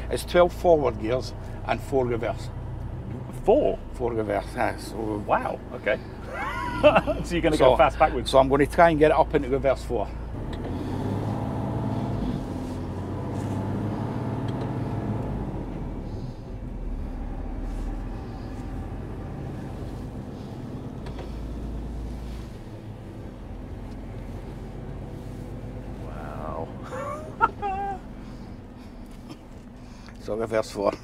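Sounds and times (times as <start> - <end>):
truck engine reversing: 9.4 - 30.0.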